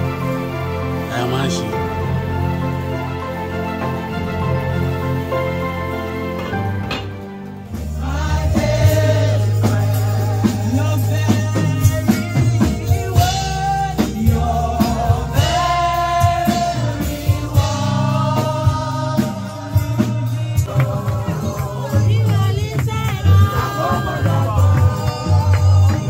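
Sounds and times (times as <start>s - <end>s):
band bass and drums: 0.0s - 26.0s
person singing long notes: 9.6s - 26.0s.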